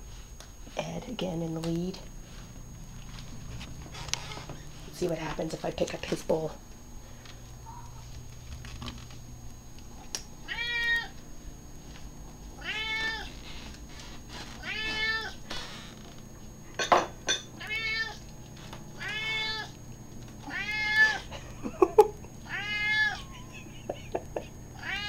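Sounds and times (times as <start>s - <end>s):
cat meowing: 10.4s - 11.1s, 12.6s - 13.4s, 14.6s - 15.4s, 17.6s - 18.2s, 19.0s - 19.7s, 20.4s - 21.3s, 22.5s - 23.5s, 24.8s - 25.0s.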